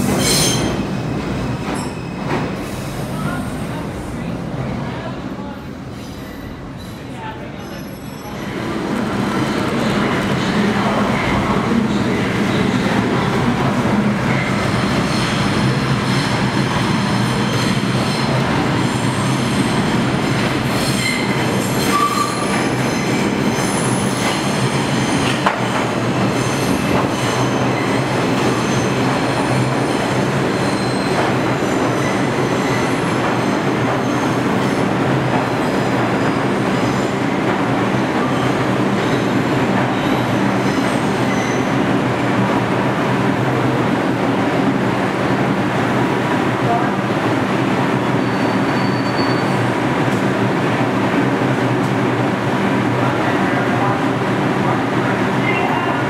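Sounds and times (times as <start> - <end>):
steel wheels squealing on rails: 0.0 - 3.8, 5.8 - 13.3, 14.2 - 37.5, 38.1 - 42.0, 47.9 - 49.9, 55.3 - 56.0
subway train rumbling: 0.0 - 56.0.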